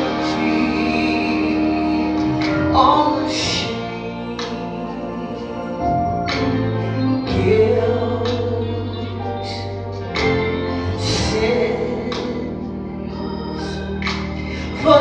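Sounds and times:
woman singing into microphone: 0.0s - 9.9s, 10.9s - 15.0s
instrumental accompaniment: 0.0s - 15.0s.

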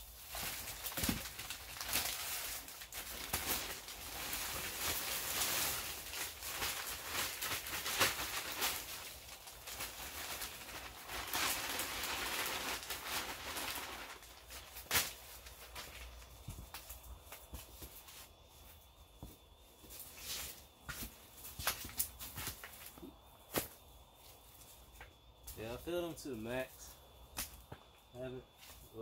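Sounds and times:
plastic bag crinkling: 0.0s - 16.9s.

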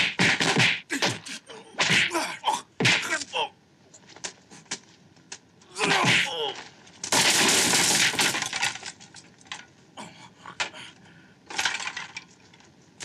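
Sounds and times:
falling debris knocks: 5.9s - 9.1s
wooden boards crashing: 7.0s - 8.9s.

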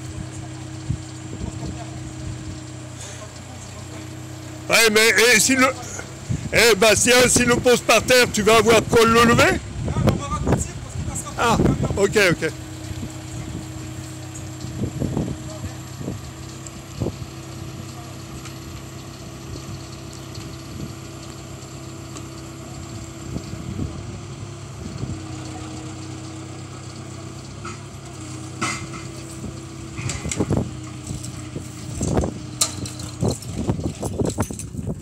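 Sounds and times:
diesel engine running: 0.0s - 35.0s
metal knocks and clanks: 27.6s - 34.9s.

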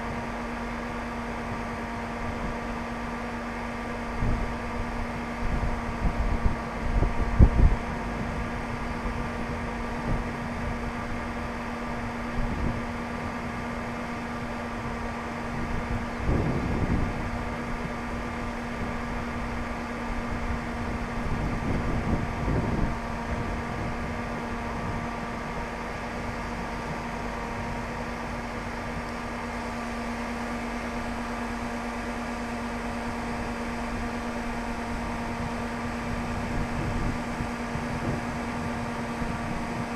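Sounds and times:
steady mechanical hum: 0.0s - 39.9s
wind buffeting microphone: 4.1s - 29.8s, 31.4s - 39.9s.

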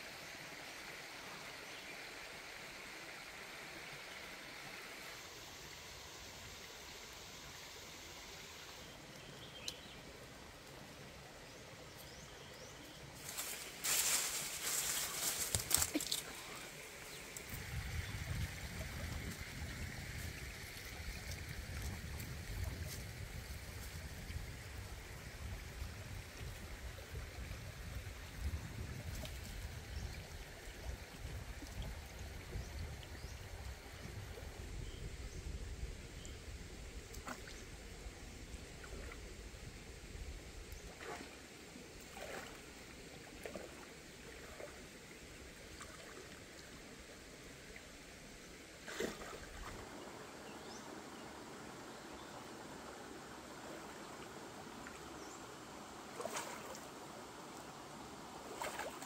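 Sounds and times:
flowing water: 0.0s - 59.0s
water sloshing from wading: 40.8s - 44.9s, 48.8s - 50.1s, 56.0s - 57.0s, 58.4s - 59.0s
sharp splashes: 56.2s - 56.9s, 58.5s - 59.0s.

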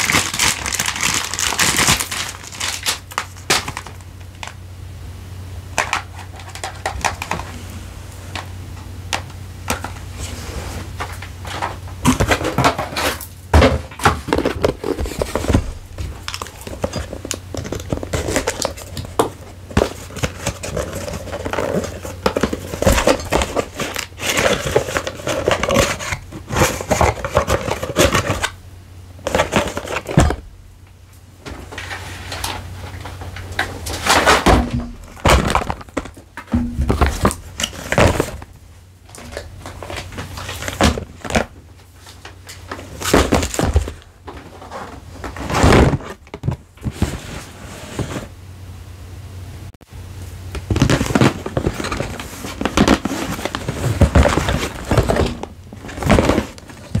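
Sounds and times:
packaging rustling and tapping: 0.0s - 4.6s, 11.0s - 28.6s, 29.2s - 30.4s, 31.5s - 38.5s, 39.1s - 47.3s, 50.6s - 57.0s.

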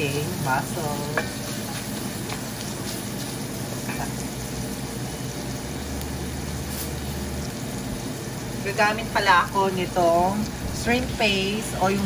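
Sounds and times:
vegetables sizzling in butter: 0.0s - 12.0s.

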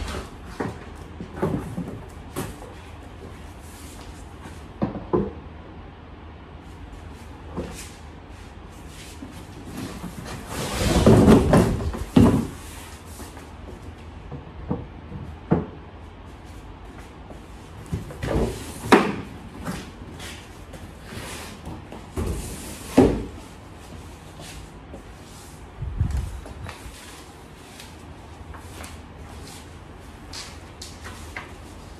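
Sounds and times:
cardboard scraping on wooden floor: 8.9s - 13.4s
box knocks and thumps: 10.9s - 12.6s.

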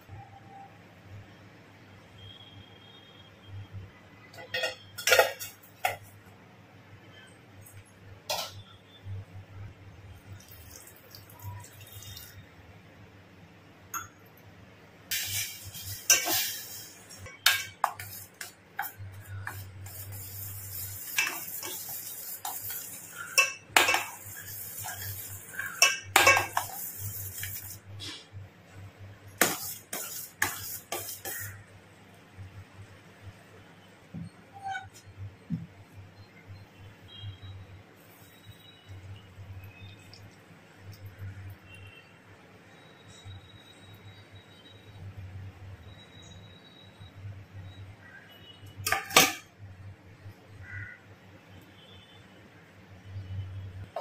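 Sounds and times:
metal spoon scraping steel pot: 4.4s - 6.0s, 8.3s - 8.7s, 15.1s - 28.3s, 29.4s - 31.6s, 34.5s - 35.1s, 48.8s - 49.5s.

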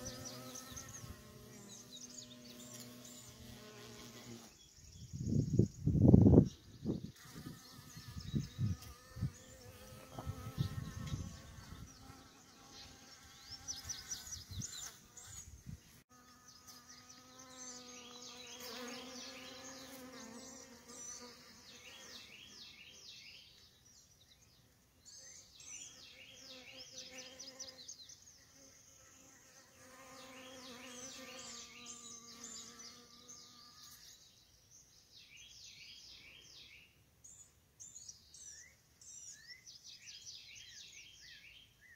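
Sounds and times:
bees buzzing: 0.0s - 4.6s, 7.2s - 15.5s, 16.1s - 22.4s.

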